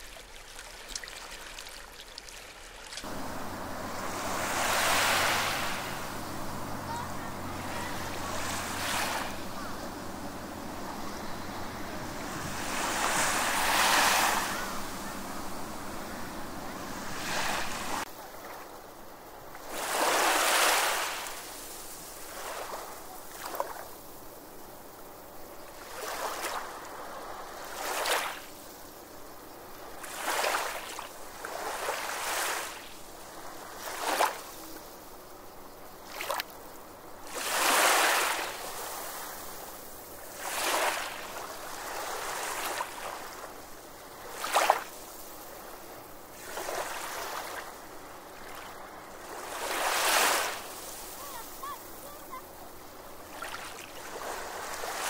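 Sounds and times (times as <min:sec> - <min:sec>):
sea waves washing onto shore: 0:00.0 - 0:18.1, 0:19.6 - 0:24.2, 0:37.3 - 0:55.0.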